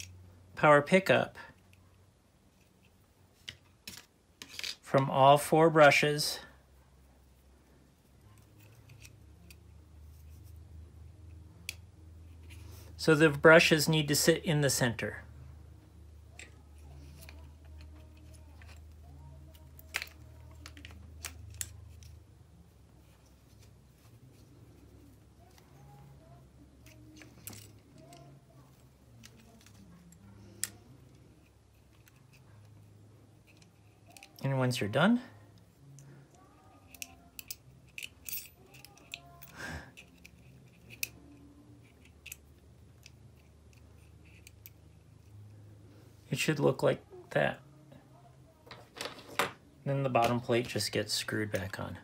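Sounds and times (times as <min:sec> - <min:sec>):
low steady hum: 0:00.0 - 0:52.0
small plastic and metal parts clicking: 0:19.5 - 0:22.2, 0:35.9 - 0:45.4.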